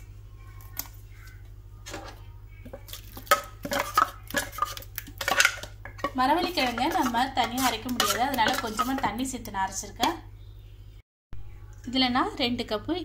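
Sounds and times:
low steady hum: 0.0s - 13.0s
steel vessel clanking on metal bowl: 3.1s - 9.2s.

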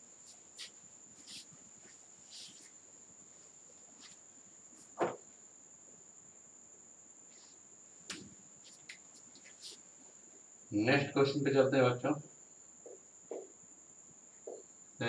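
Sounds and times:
duster rubbing on whiteboard: 0.3s - 2.8s, 8.6s - 9.8s
short thud: 5.0s - 5.2s.

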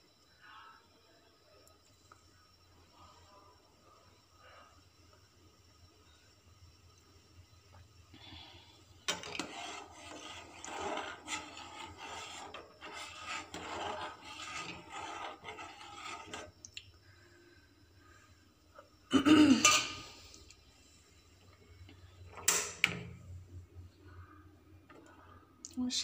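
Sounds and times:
metal spoon scraping a pot: 9.0s - 16.6s, 19.6s - 20.1s.

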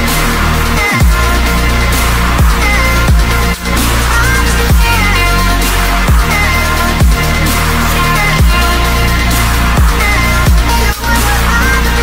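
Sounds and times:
electronic music with heavy bass: 0.0s - 12.0s
deep kick drum hits: 1.0s - 1.2s, 2.4s - 3.3s, 4.7s - 5.0s, 6.1s - 6.4s, 7.0s - 7.2s, 8.4s - 8.7s, 9.8s - 10.7s.

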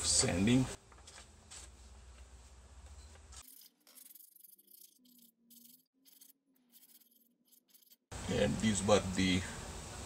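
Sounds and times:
sandpaper scratching on cement: 3.4s - 8.1s.

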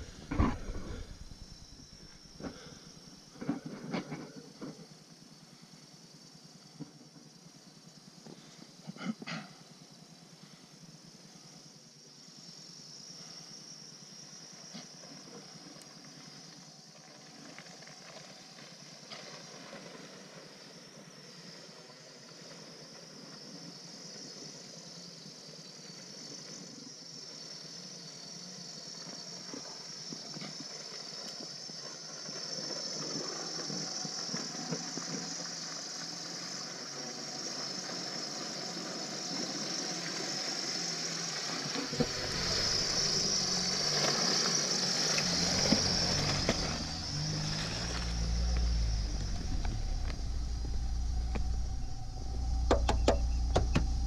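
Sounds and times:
car engine running: 0.0s - 3.3s, 41.0s - 54.0s
deep engine rumble: 0.0s - 3.3s, 41.9s - 54.0s.

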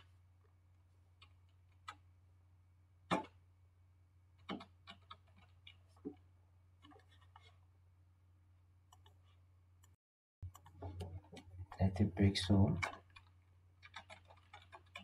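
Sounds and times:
low electrical hum: 0.0s - 13.8s
faint irregular clicks and taps: 1.1s - 2.1s, 4.4s - 7.6s, 8.9s - 12.0s, 12.7s - 15.0s.

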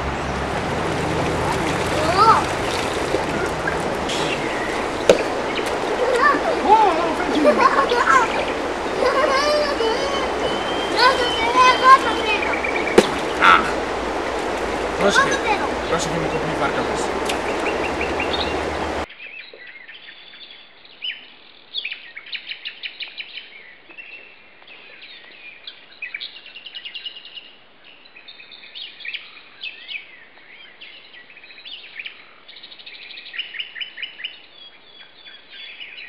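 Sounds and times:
stream water rushing: 0.0s - 19.1s
songbirds chirping and trilling: 0.0s - 36.0s.

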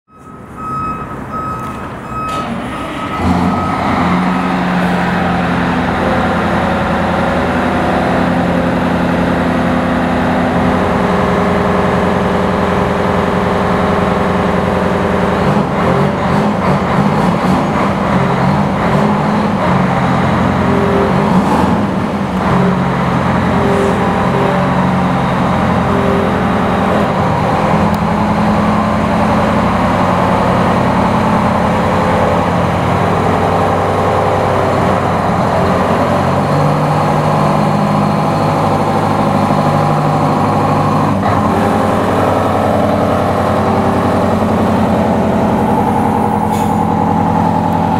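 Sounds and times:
electronic beeps: 0.1s - 4.0s
diesel truck engine running: 0.1s - 47.9s.

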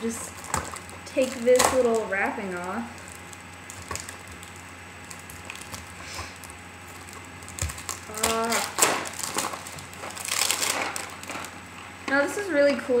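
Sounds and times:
candy wrapper crinkling: 0.0s - 11.9s
wrapper crackling: 0.0s - 12.0s.

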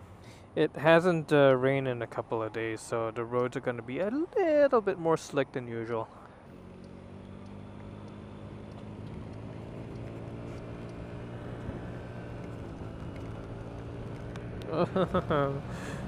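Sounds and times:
wind and road noise: 0.0s - 16.0s
scooter engine running: 6.3s - 16.0s.

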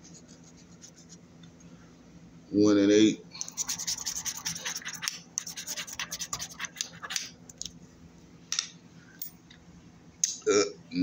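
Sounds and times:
scratching lottery ticket: 3.4s - 7.3s.

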